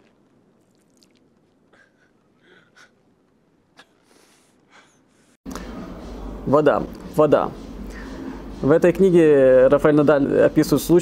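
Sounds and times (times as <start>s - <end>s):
person gulping and slurping: 0.0s - 1.7s.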